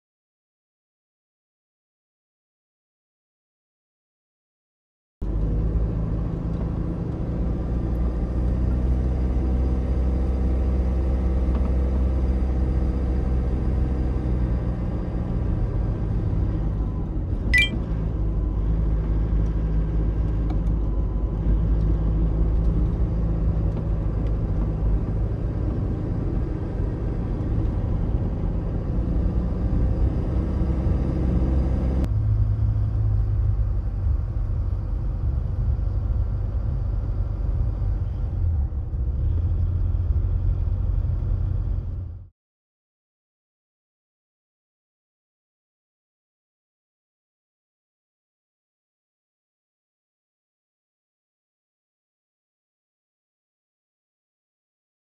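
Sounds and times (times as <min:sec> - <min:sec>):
van engine and road rumble: 0:05.2 - 0:42.3
sharp high squeak: 0:17.6 - 0:17.8.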